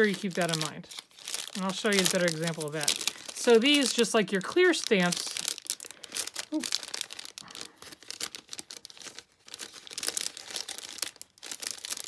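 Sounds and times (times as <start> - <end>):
plastic sleeve crinkling: 0.0 - 12.0.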